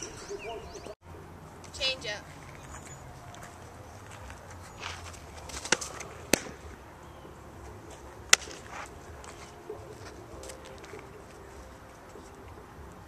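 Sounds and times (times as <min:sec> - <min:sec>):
ball smacking into leather glove: 0:04.9 - 0:06.7, 0:08.3 - 0:09.4.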